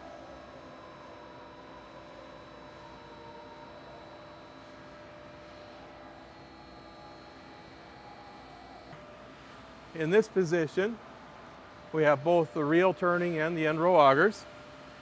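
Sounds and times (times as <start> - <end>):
hydraulic drive humming with whine: 0.0 - 10.0.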